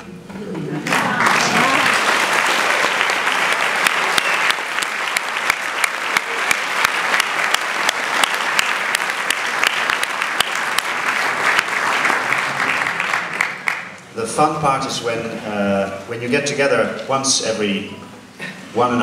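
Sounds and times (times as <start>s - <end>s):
audience applauding: 0.8s - 14.1s.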